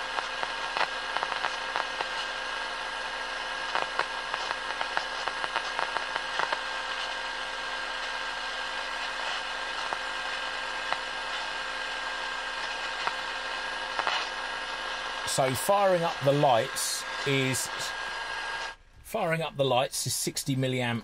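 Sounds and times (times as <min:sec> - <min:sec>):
radio crackles and clicks: 0:00.0 - 0:21.0
radio static hiss: 0:00.0 - 0:21.0.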